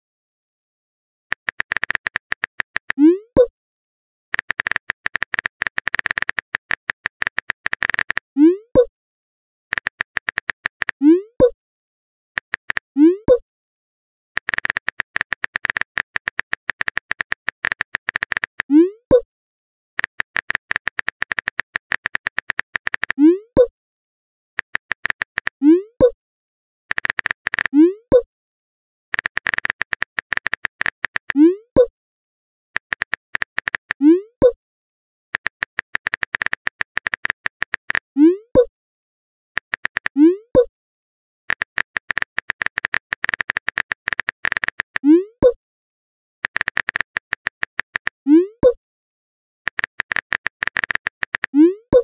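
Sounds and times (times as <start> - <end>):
rapid typing clicks: 1.3 - 3.1, 4.3 - 8.3, 9.7 - 11.0, 12.4 - 12.9, 14.4 - 18.7, 20.0 - 23.2, 24.6 - 25.6, 26.9 - 27.7, 29.1 - 31.4, 32.8 - 34.0, 35.4 - 38.1, 39.6 - 40.4, 41.5 - 45.1, 46.4 - 48.2, 49.7 - 51.6.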